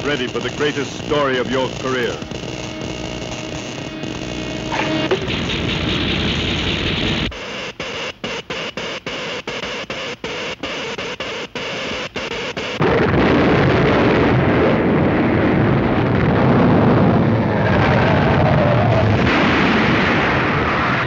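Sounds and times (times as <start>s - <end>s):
loud electric hiss: 0.0s - 7.6s
electric crackling: 0.0s - 21.0s
earthquake rumble: 12.8s - 21.0s.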